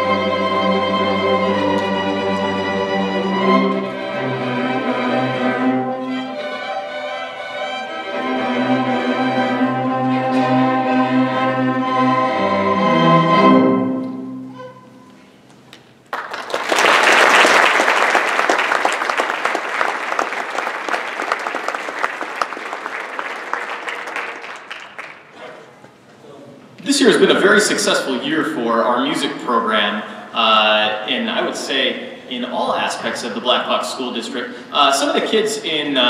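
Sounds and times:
string orchestra playing: 0:00.0 - 0:15.2
audience applause: 0:16.1 - 0:25.7.

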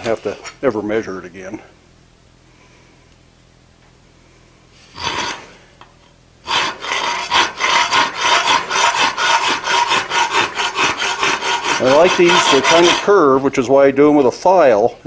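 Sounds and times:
hand file scraping metal: 0:05.0 - 0:05.6, 0:06.5 - 0:13.4.

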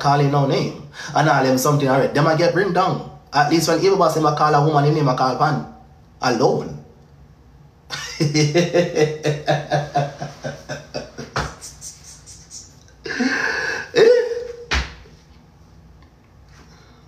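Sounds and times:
man laughing: 0:07.9 - 0:14.7
breathy exhale: 0:16.6 - 0:17.0.

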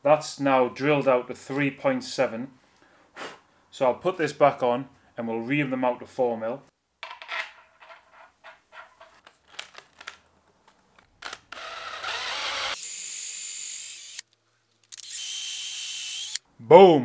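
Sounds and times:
cordless drill whining: 0:11.2 - 0:14.2, 0:14.9 - 0:16.4.

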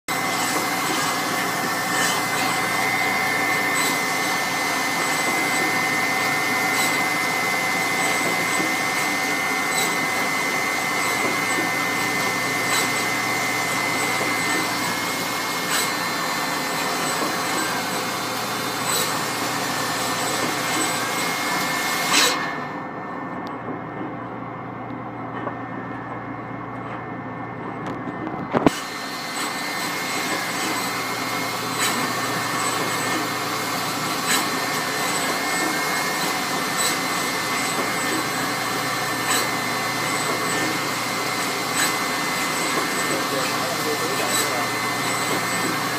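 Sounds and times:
machine whine: 0:00.0 - 0:45.9
sharp machine clicks: 0:00.1 - 0:19.3.

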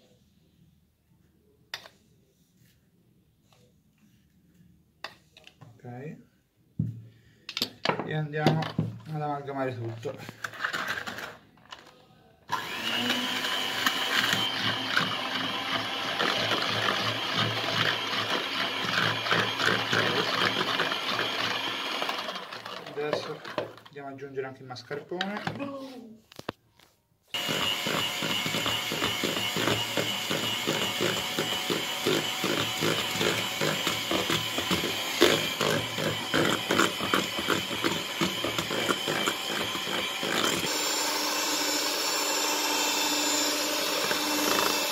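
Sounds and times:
electric hand mixer whining: 0:12.5 - 0:23.9, 0:27.4 - 0:44.9.

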